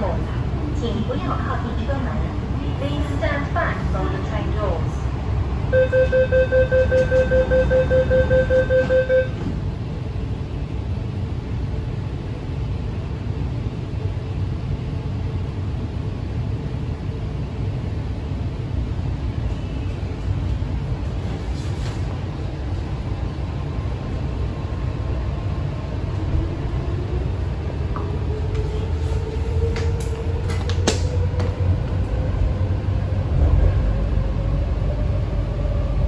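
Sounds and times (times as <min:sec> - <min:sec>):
metro train rumble: 0:00.0 - 0:36.0
fast high door warning beeps: 0:05.8 - 0:09.4.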